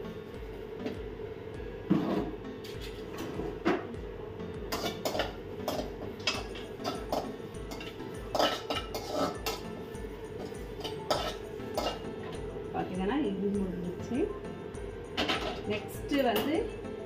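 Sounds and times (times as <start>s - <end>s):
steady hum: 0.0s - 17.0s
metal spatula scraping a pan: 4.7s - 9.7s, 10.4s - 12.1s.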